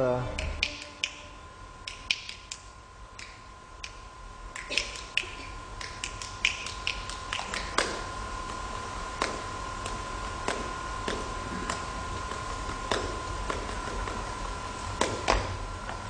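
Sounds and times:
faint high-pitched hum: 0.0 - 16.0
hand claps and snaps: 0.4 - 8.6, 9.2 - 11.8, 12.7 - 14.2, 15.0 - 15.5
feet striking stage floor: 15.0 - 16.0.

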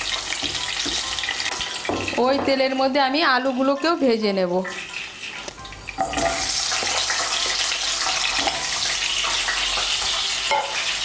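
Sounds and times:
potatoes sizzling in hot oil: 0.0 - 11.0.

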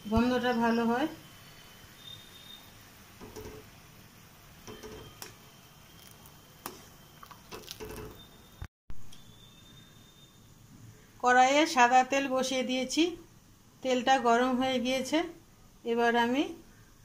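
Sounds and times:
syrup bubbling in a pan: 1.2 - 8.6.

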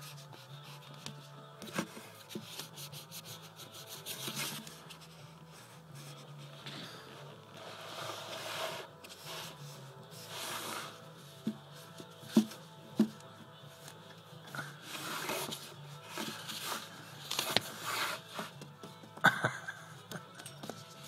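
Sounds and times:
foam sword scraping wooden floor: 7.5 - 11.6, 14.8 - 18.6.

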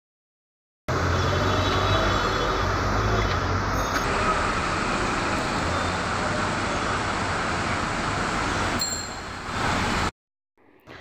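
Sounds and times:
wheels hissing through water: 4.1 - 10.1.

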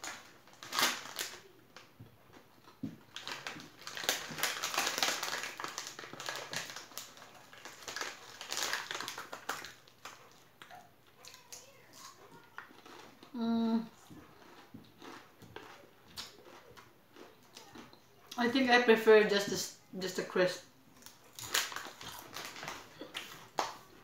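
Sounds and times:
crisp packet crinkling: 0.0 - 2.4, 3.1 - 10.5, 21.0 - 23.8.

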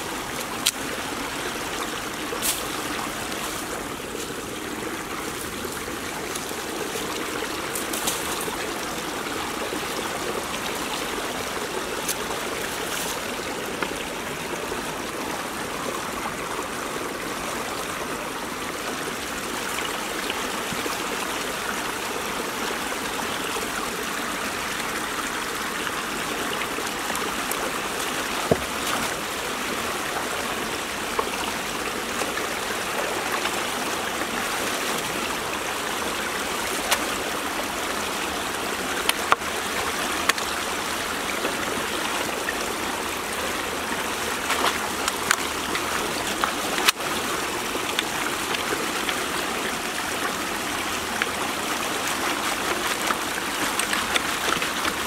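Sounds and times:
water rushing in ditch: 0.0 - 55.0.

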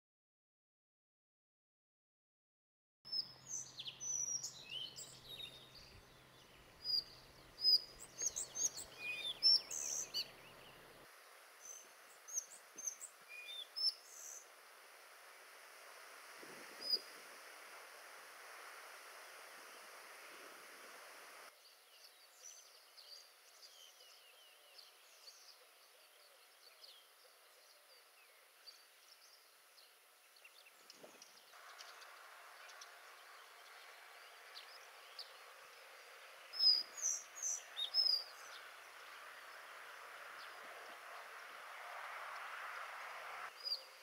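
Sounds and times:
faint high bird chirps: 3.1 - 11.0, 11.6 - 14.5, 16.6 - 17.3, 19.6 - 41.3, 43.5 - 44.0
flycatcher singing: 3.1 - 14.6, 15.9 - 27.1, 27.7 - 42.9
background hiss: 3.1 - 44.0.

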